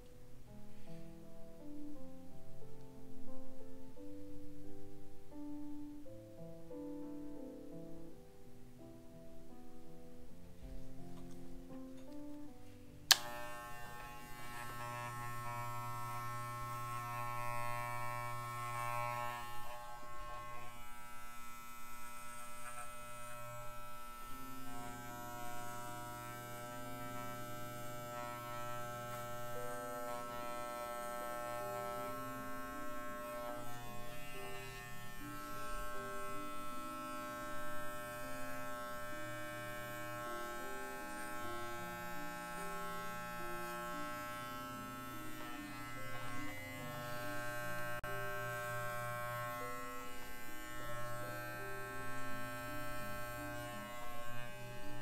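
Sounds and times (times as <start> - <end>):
electric clippers buzzing: 13.1 - 55.0.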